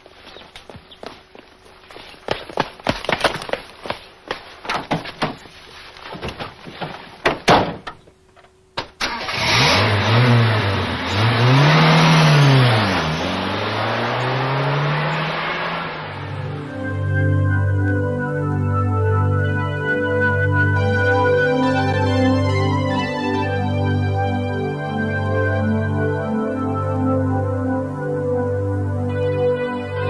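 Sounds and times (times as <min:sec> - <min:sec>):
sharp knocks or footsteps: 0:00.2 - 0:08.0
engine starting and revving: 0:09.0 - 0:16.8.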